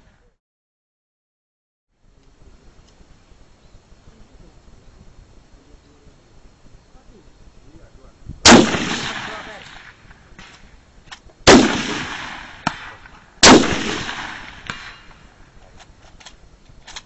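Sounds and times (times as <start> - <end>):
rifle shots with rolling echo: 8.4 - 15.6.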